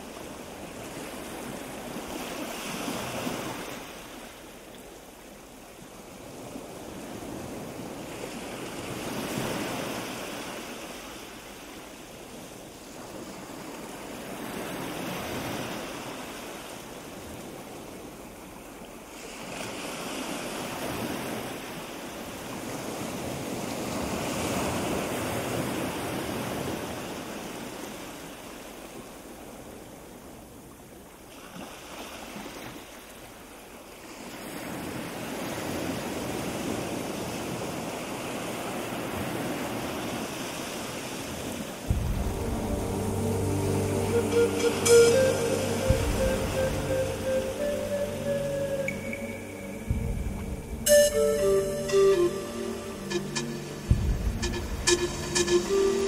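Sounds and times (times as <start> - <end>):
wind gusting against microphone: 41.5 - 55.5.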